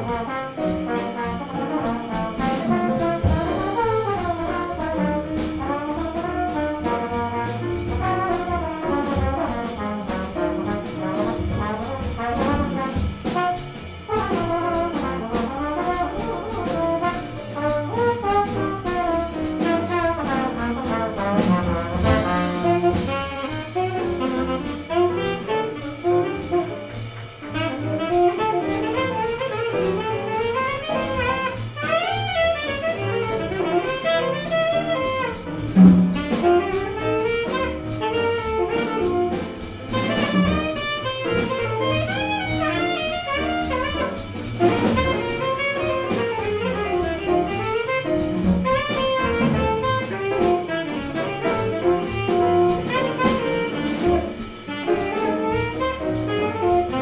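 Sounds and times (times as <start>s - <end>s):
drum kit: 0.0s - 57.0s
piano: 0.0s - 57.0s
walking double bass: 0.0s - 57.0s.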